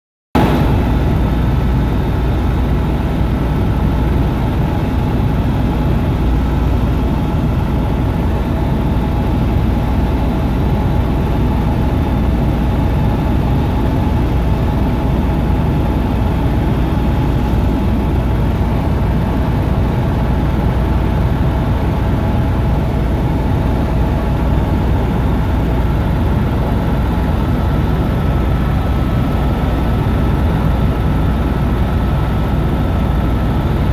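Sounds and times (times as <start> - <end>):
helicopter engine and rotor drone: 0.4 - 33.9.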